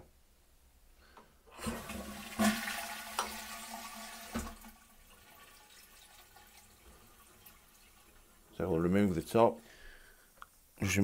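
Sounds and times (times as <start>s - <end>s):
toilet flushing: 1.5s - 8.8s
faint water trickle: 4.7s - 10.3s.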